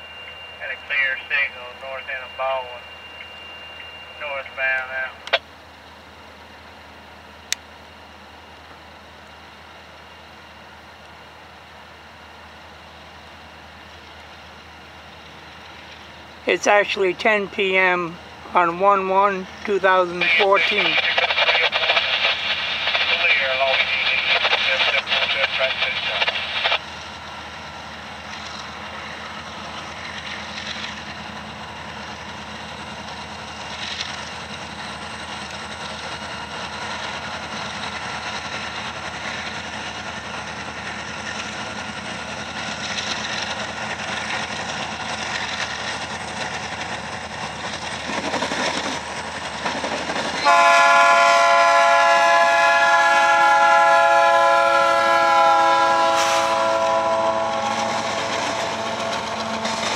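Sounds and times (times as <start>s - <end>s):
freight train rumble: 0.0s - 59.9s
locomotive air horn chord: 50.4s - 59.9s.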